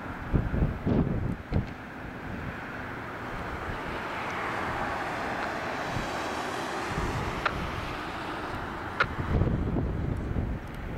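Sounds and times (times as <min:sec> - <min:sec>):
distant jet engine noise: 0:00.0 - 0:10.9
wind on microphone: 0:00.0 - 0:10.9.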